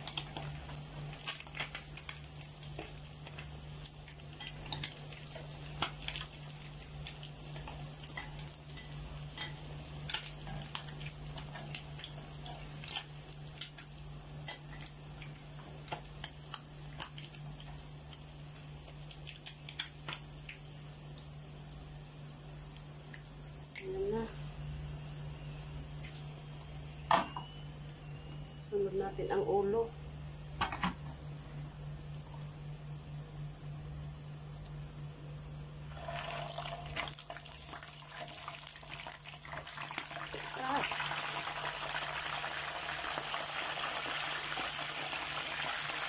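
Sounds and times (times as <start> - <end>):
oil popping and crackling: 0.0 - 8.8, 9.4 - 20.7, 35.9 - 46.0
fish sizzling in hot oil: 0.0 - 21.0, 35.9 - 46.0.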